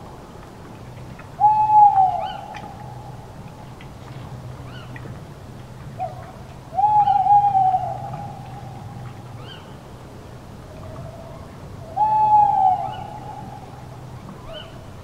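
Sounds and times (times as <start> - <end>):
owl hooting: 1.4 - 3.0, 6.8 - 9.6, 11.9 - 13.8.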